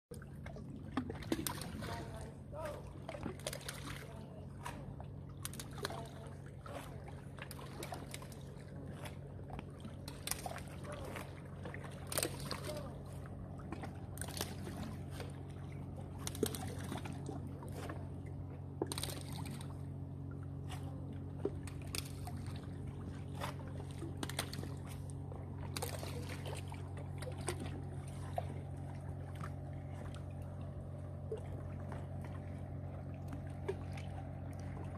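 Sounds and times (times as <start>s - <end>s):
small splashes and clicks: 0.1s - 34.9s
steady low hum: 0.1s - 34.9s
waves lapping against rocks: 0.2s - 18.2s, 20.6s - 34.9s.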